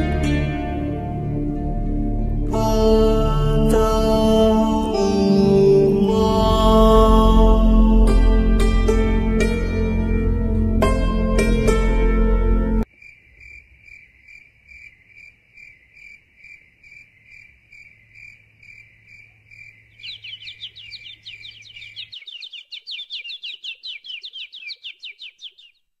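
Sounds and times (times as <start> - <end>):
crickets chirping: 12.8 - 25.7
fast downward sliding chirps: 19.9 - 25.8.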